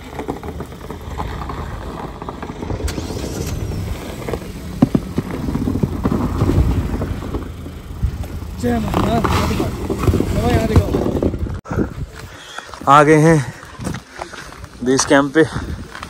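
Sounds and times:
car engine at low revs: 0:00.0 - 0:11.6.

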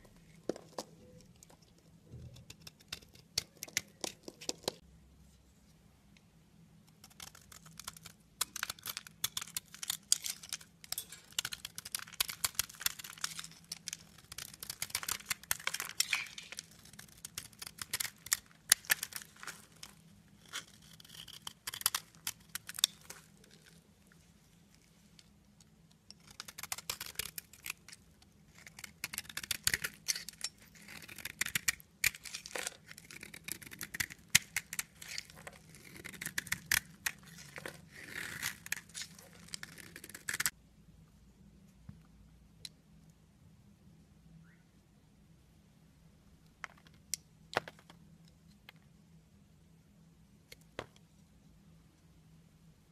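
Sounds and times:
knife carving soap crunching: 0:02.3 - 0:04.8, 0:06.9 - 0:23.9, 0:26.1 - 0:40.6.

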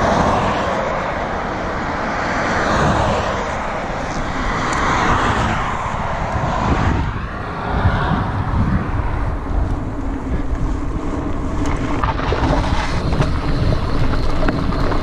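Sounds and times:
cars passing: 0:00.0 - 0:15.0
wind on microphone: 0:02.5 - 0:15.0.

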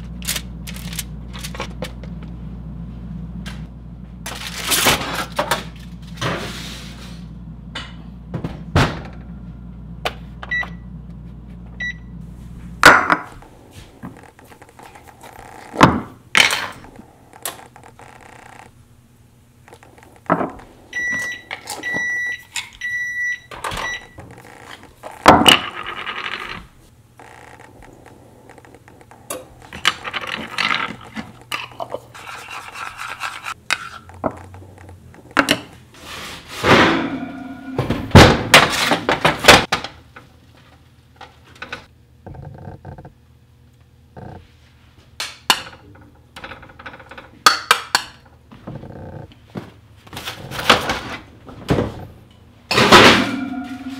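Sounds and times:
electronic appliance beeps: 0:10.4 - 0:11.0, 0:11.8 - 0:12.2, 0:20.9 - 0:24.3, 0:53.3 - 0:53.9.

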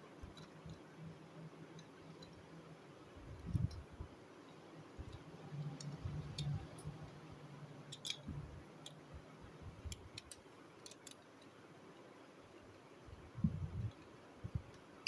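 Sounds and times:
plastic toy parts clicking: 0:07.9 - 0:09.0, 0:09.8 - 0:11.5.

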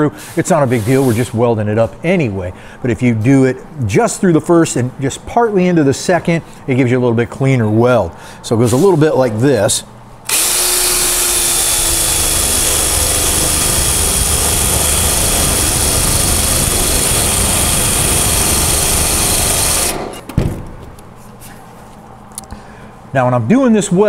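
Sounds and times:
drill boring through sheet metal: 0:10.3 - 0:20.2.

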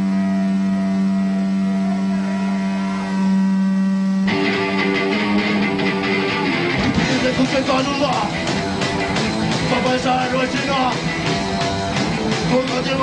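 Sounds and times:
droning electric guitar: 0:00.0 - 0:13.0
punk band playing loud: 0:04.3 - 0:13.0.

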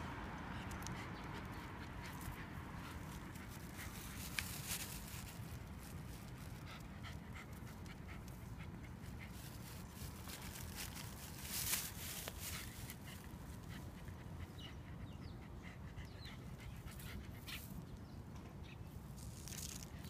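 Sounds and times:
dog panting: 0:06.2 - 0:10.0, 0:12.0 - 0:17.9.

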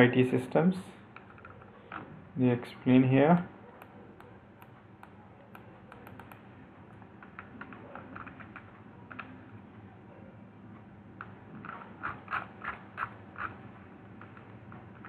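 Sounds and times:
faint computer clicks: 0:03.8 - 0:09.3.

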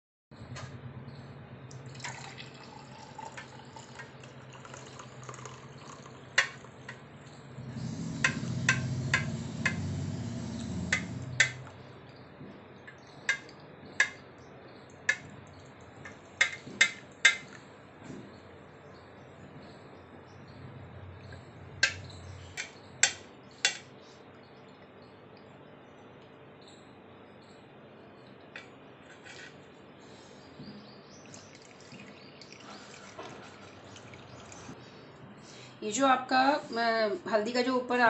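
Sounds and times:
milk pouring into a mug: 0:01.9 - 0:07.0, 0:31.3 - 0:34.8.

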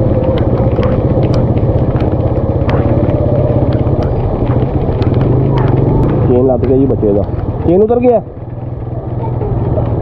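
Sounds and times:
small engine puttering: 0:00.0 - 0:10.0.

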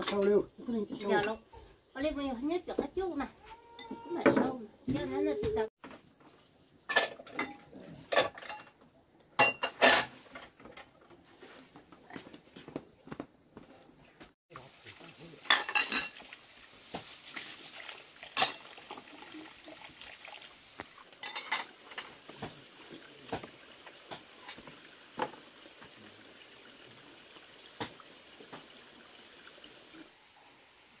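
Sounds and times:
utensils clinking against dishes: 0:00.0 - 0:01.4, 0:06.9 - 0:08.7, 0:09.4 - 0:11.2, 0:15.5 - 0:16.2, 0:21.2 - 0:22.2.

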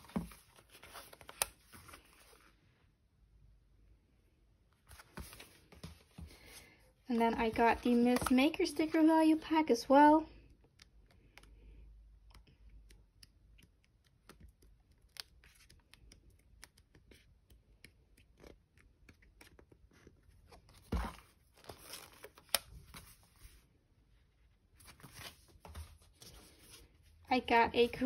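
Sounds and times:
paper and card rustling: 0:00.0 - 0:02.6, 0:04.9 - 0:09.4, 0:18.2 - 0:23.6, 0:24.8 - 0:28.0.

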